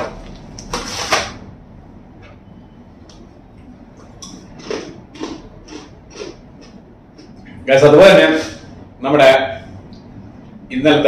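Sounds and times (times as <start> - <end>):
crunchy snack being chewed: 4.2 - 7.4.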